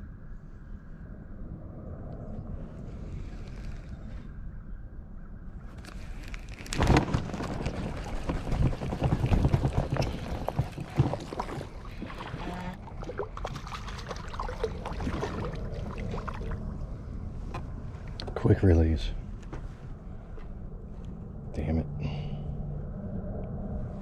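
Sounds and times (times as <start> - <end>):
gear clicks and knocks: 5.8 - 11.8.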